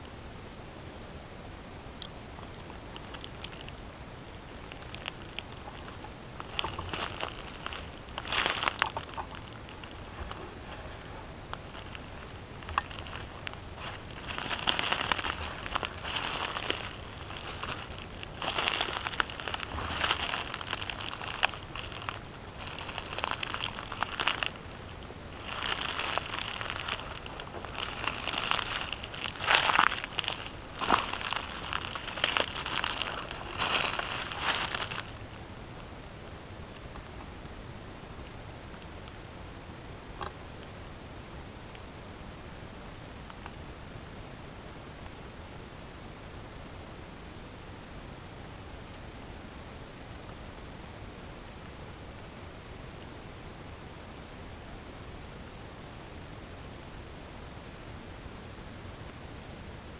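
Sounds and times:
dry leaves crunching: 3.0s - 35.3s.

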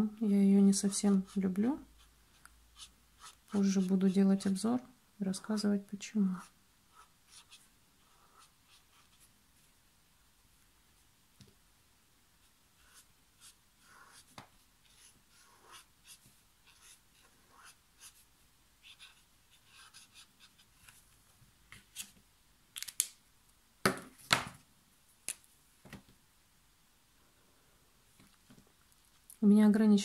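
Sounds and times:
marker scratching on paper: 0.8s - 4.3s, 6.4s - 9.3s, 12.4s - 21.0s.

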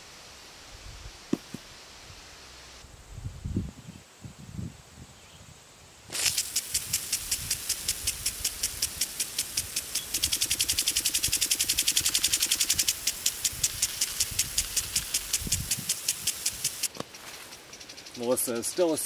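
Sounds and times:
impact sprinkler ticking: 6.2s - 17.0s.

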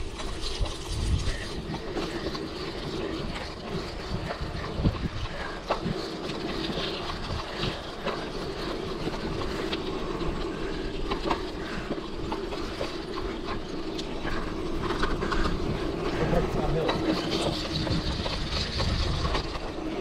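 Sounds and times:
bike rattling and knocking: 0.0s - 20.0s
bike tyre noise: 0.0s - 20.0s.

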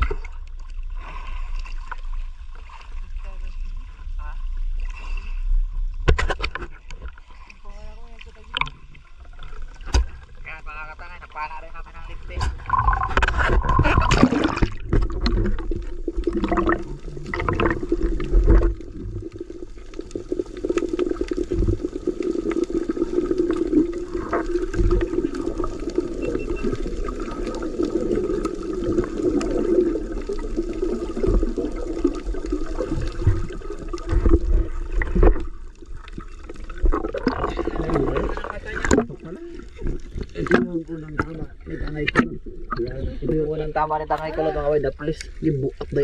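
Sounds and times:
water rushing and bubbling: 0.0s - 46.0s.

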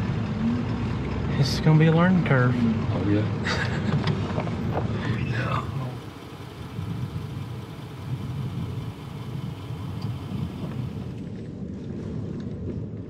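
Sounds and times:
road noise: 0.0s - 11.7s
truck engine rumble: 0.0s - 11.9s.

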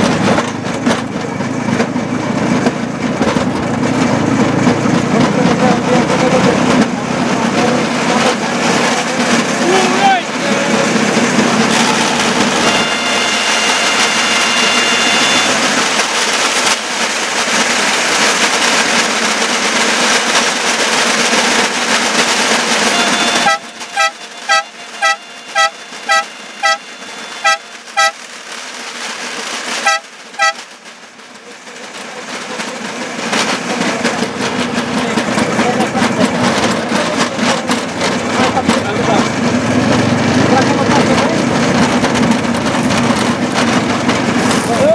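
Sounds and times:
rail vehicle running on track: 0.0s - 44.9s
horn short toots: 11.7s - 16.8s, 22.8s - 28.2s, 29.7s - 30.7s.

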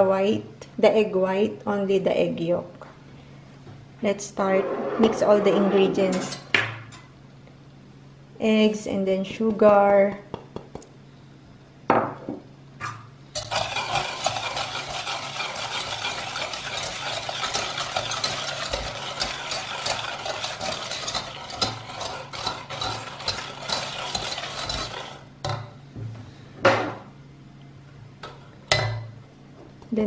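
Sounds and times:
whisk scraping metal pot: 13.4s - 25.3s.

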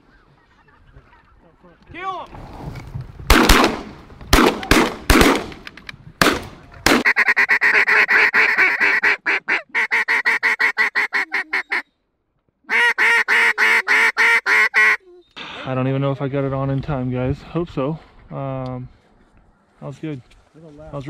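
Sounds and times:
shotgun shots: 3.3s - 5.6s, 6.2s - 7.0s
duck call quacks: 7.0s - 11.9s, 12.7s - 15.0s.

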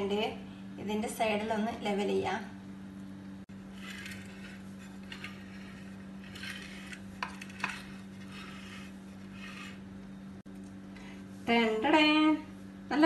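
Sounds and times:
steady low hum: 0.0s - 13.0s
spoon scraping rice in clay pot: 3.8s - 9.8s.

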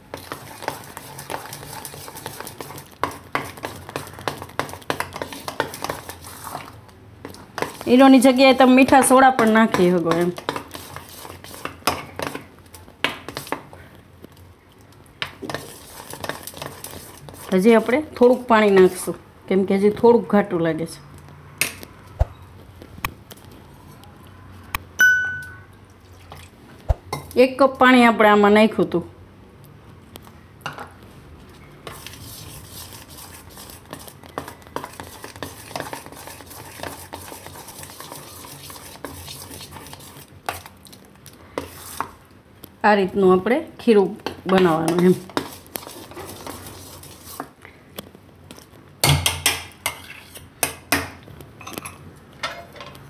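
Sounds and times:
spoon stirring thick batter: 0.0s - 19.2s, 30.2s - 42.8s, 43.8s - 48.8s, 49.4s - 51.2s
spoon scraping metal bowl: 0.1s - 6.8s, 7.6s - 12.4s, 31.8s - 40.7s, 44.5s - 47.5s, 49.8s - 50.5s
spoon clinking against metal bowl: 25.0s - 25.7s.

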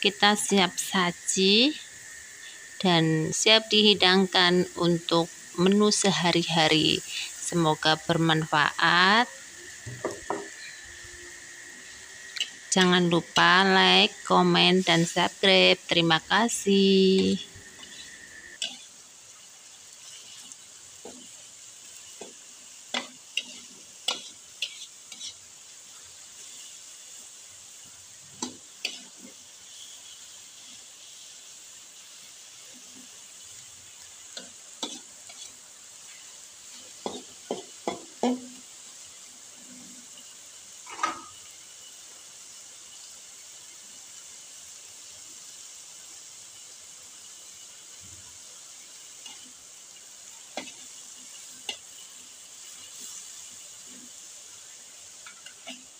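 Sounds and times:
food sizzling in frying pan: 0.0s - 55.9s
spatula knocking and scraping pan: 9.8s - 10.7s, 22.2s - 25.4s, 34.4s - 35.5s, 36.9s - 38.5s, 50.6s - 50.8s.

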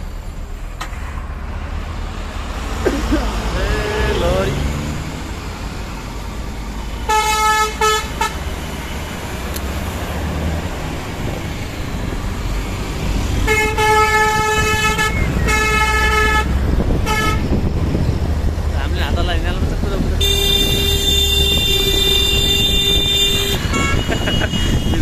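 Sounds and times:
road rumble: 0.0s - 25.0s
vehicle horn honking: 3.7s - 4.5s, 7.1s - 8.4s, 13.4s - 17.5s, 20.2s - 25.0s.

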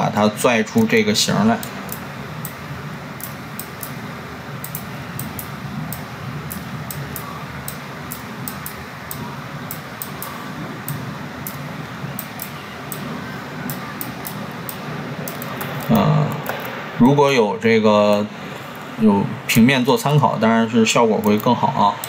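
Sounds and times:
low hum and hiss: 0.0s - 22.0s
computer mouse clicking: 1.6s - 2.6s, 3.2s - 4.0s, 4.6s - 16.8s.

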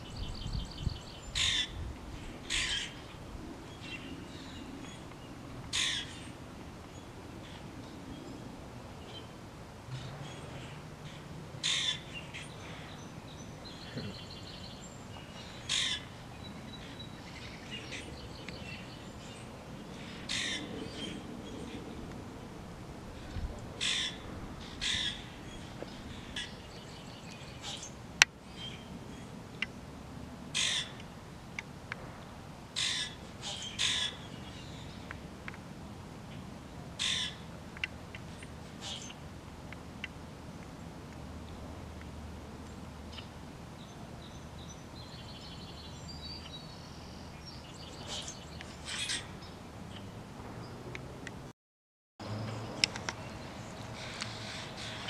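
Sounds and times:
bird harsh calls: 0.0s - 1.8s, 2.4s - 3.2s, 5.7s - 6.4s, 9.9s - 21.2s, 23.8s - 28.0s, 30.6s - 31.0s, 32.8s - 35.0s, 37.0s - 37.4s, 38.8s - 39.2s, 47.7s - 49.5s, 53.6s - 55.0s
outdoor background noise: 0.0s - 51.5s, 52.2s - 55.0s.

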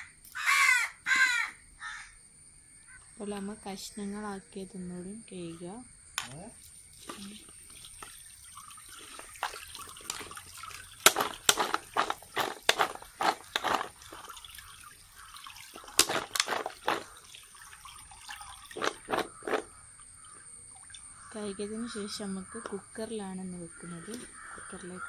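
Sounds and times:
water sloshing and splashing in bowl: 6.2s - 21.4s.

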